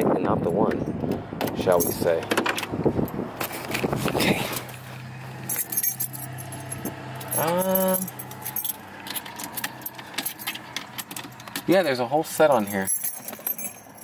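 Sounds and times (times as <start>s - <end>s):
keys jangling: 1.7s - 2.2s, 5.4s - 14.0s.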